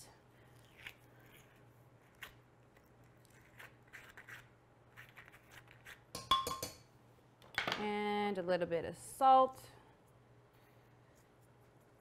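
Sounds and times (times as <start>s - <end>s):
spoon scraping avocado: 0.6s - 6.1s
spoon knocking against jar: 6.2s - 6.8s.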